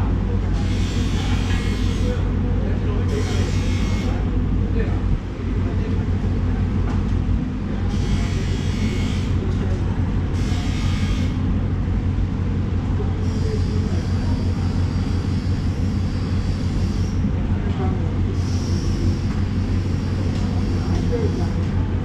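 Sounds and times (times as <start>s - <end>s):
low mechanical rumble: 0.0s - 22.0s.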